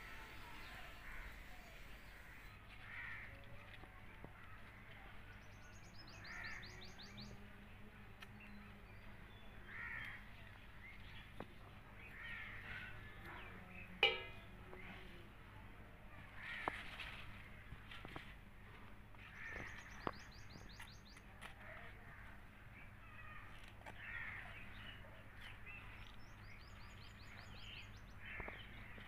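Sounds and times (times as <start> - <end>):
crows cawing: 0.2 - 1.6, 2.2 - 3.4, 9.6 - 10.2, 12.1 - 13.2, 16.4 - 17.0, 19.2 - 19.8, 23.0 - 24.6.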